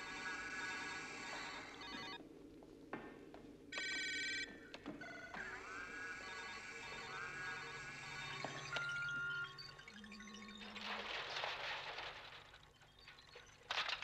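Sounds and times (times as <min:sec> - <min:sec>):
synthetic electronic tones: 0:05.2 - 0:11.2.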